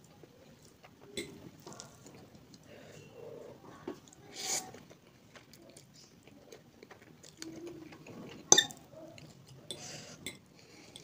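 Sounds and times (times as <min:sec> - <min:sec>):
chewing noodles with wet clicks: 0:04.9 - 0:11.0.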